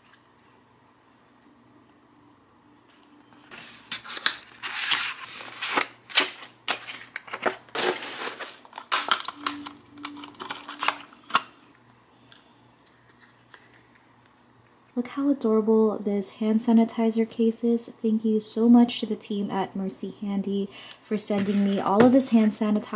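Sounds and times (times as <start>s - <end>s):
plastic packaging crinkling: 3.4s - 11.6s.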